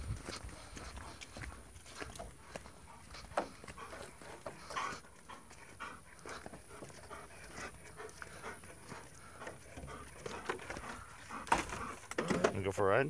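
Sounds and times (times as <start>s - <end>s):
footsteps on dirt and leaves: 0.0s - 12.0s
dog panting: 0.0s - 12.2s.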